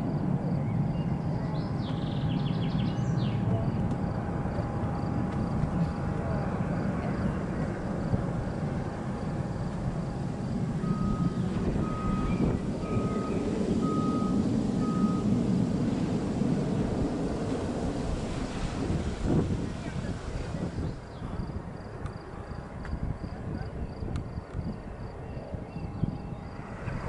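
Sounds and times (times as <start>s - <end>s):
distant jet engine rumble: 0.0s - 27.0s
beeps: 10.8s - 15.3s.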